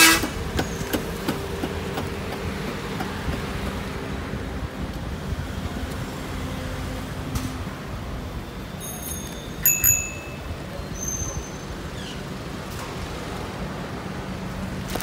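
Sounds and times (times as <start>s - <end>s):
traffic hum and idling engines: 0.0s - 15.0s
bright metallic pings: 8.8s - 10.6s.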